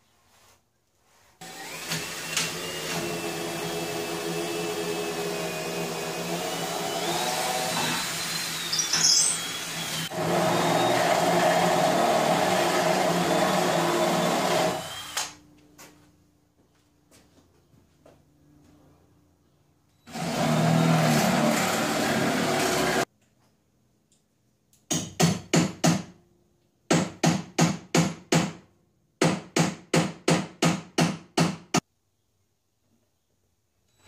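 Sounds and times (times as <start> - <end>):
high squeal: 8.6 - 9.7.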